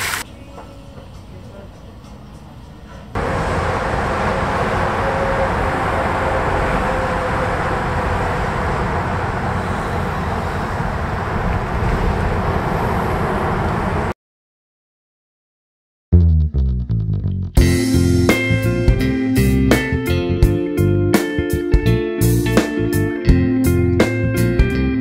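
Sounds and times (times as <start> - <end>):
road traffic noise: 0.0 - 14.2.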